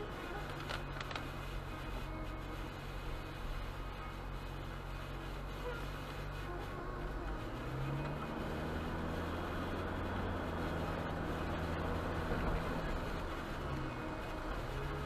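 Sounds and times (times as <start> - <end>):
tyres hissing on wet road: 0.0 - 15.0
car engine accelerating: 4.4 - 15.0.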